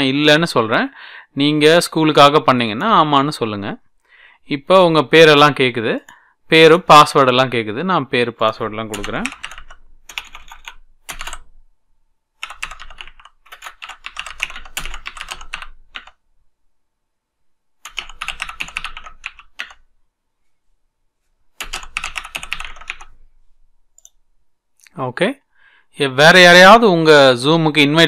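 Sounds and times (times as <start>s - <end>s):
keyboard typing: 8.6s - 11.6s, 12.4s - 16.2s, 17.8s - 19.9s, 21.6s - 23.2s.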